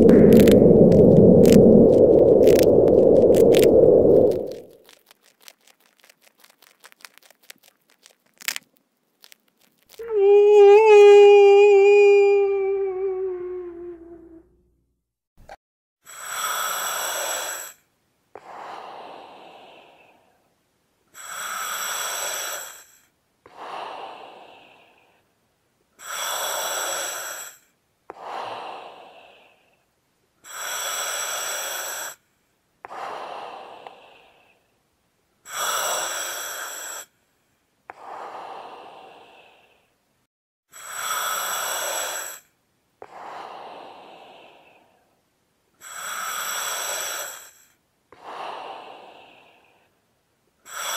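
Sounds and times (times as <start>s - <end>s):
slow deep breathing: 0.0s - 4.8s, 18.4s - 20.5s, 21.6s - 25.3s, 32.8s - 34.7s, 37.9s - 40.0s, 47.6s - 50.0s.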